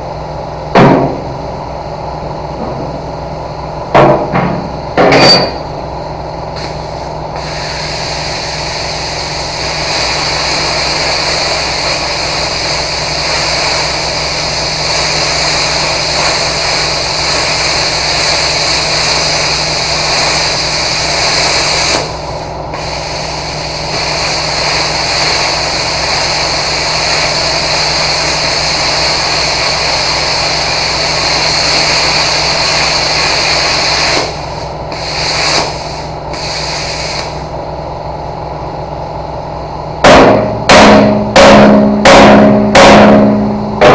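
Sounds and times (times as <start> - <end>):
plasma cutter hissing: 6.6 - 37.5.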